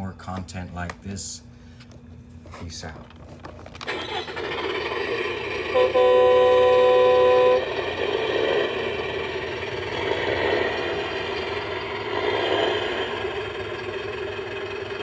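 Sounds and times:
toy truck engine sound effect: 3.8s - 15.0s.

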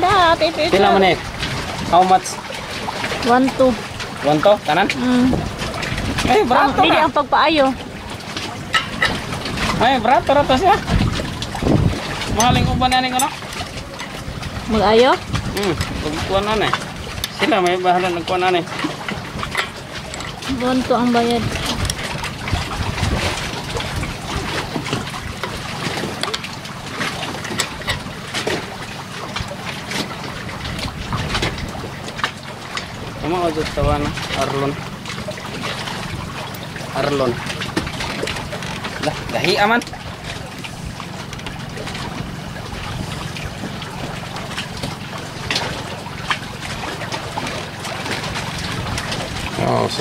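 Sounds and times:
water sounds: 0.0s - 50.0s
wind on microphone: 5.0s - 17.3s, 20.5s - 26.2s, 30.4s - 32.2s, 33.0s - 34.9s, 35.8s - 46.0s.

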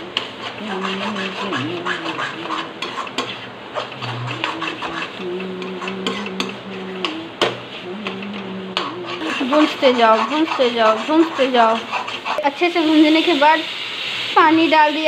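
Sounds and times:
metal spatula scraping pan: 0.0s - 13.3s
low wavering hum: 4.0s - 9.2s.

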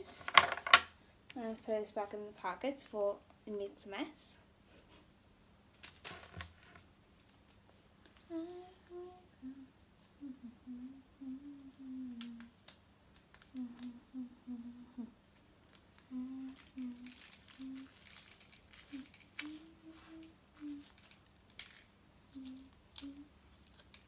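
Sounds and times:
girl humming: 8.2s - 12.6s, 13.5s - 15.2s, 16.0s - 18.2s, 18.8s - 21.0s, 22.3s - 23.4s
plastic packet crinkling: 16.4s - 21.9s.

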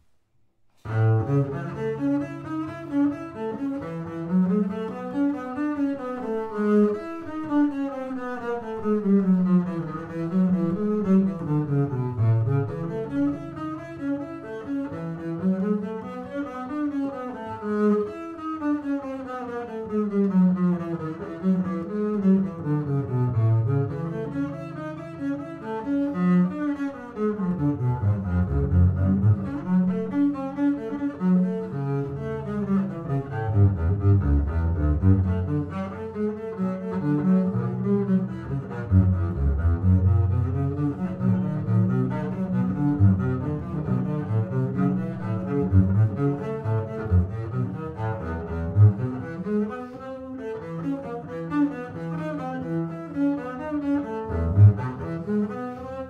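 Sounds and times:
bowed double bass: 0.8s - 56.0s.

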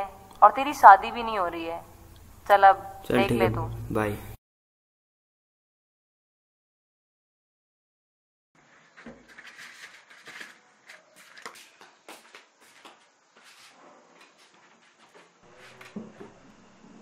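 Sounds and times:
person moving about room: 8.6s - 17.0s.

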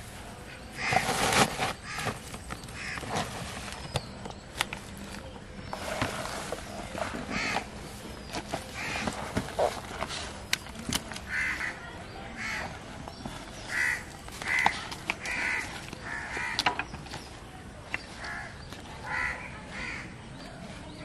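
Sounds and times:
crows cawing: 7.3s - 7.7s, 8.8s - 9.1s, 11.3s - 11.8s, 13.7s - 16.8s, 18.2s - 20.1s.

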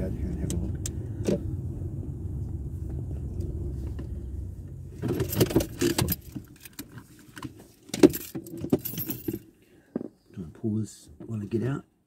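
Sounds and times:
car engine and road rumble: 0.0s - 11.8s
keys jangling and clicking: 8.0s - 9.4s.

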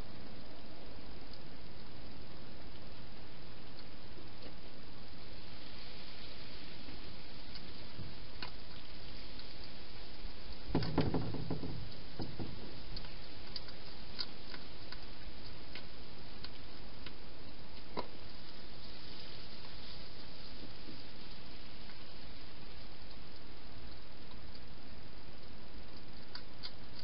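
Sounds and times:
steady hiss: 0.0s - 27.0s
hedgehog feeding clicks: 7.5s - 18.4s, 22.6s - 27.0s
knocks and rustles: 10.7s - 13.2s.

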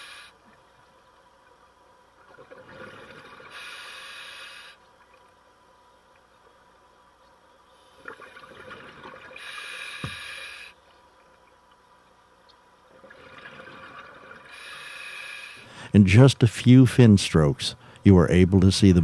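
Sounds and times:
regulator air hiss: 0.0s - 0.5s, 3.5s - 4.8s, 9.4s - 10.8s, 14.5s - 16.0s
bubbles burbling: 8.1s - 9.4s, 13.0s - 14.5s.

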